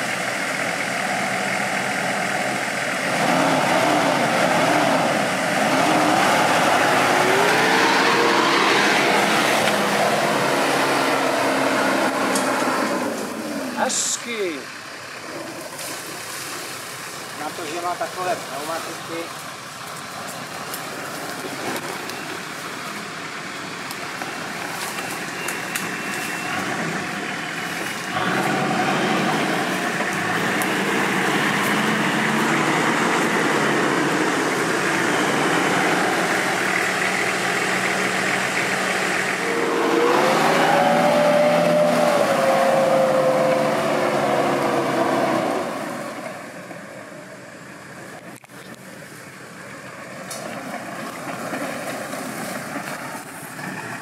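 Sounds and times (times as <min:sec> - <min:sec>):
off-road vehicle engine running: 0:00.0 - 0:54.0
rising and falling whine: 0:03.2 - 0:13.8, 0:38.7 - 0:46.3.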